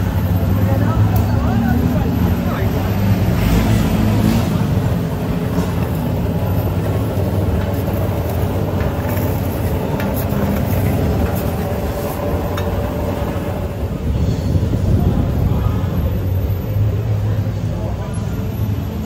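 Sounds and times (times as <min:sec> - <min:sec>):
traffic engine rumble: 0:00.0 - 0:19.0
faint clicks and clatters: 0:05.5 - 0:13.4.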